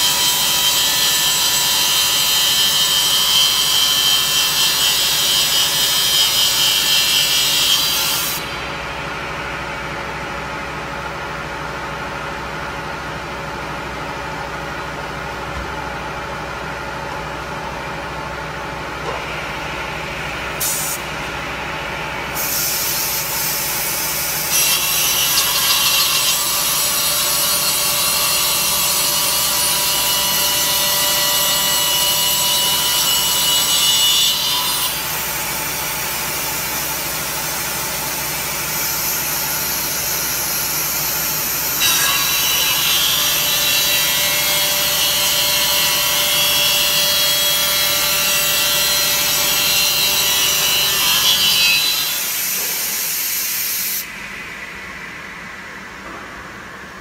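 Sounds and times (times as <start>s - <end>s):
saw cutting wood with high whine: 0.0s - 8.7s, 22.4s - 54.1s.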